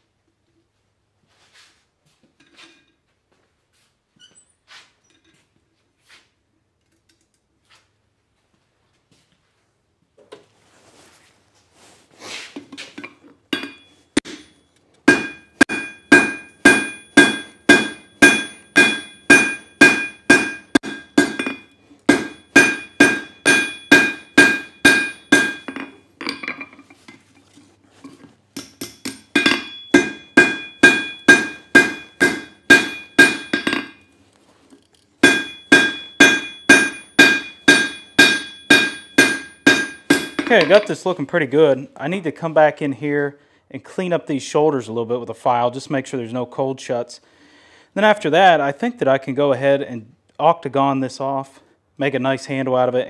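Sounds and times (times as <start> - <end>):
hammer striking steel on anvil: 13.5 - 26.8, 28.6 - 34.1, 35.2 - 41.0.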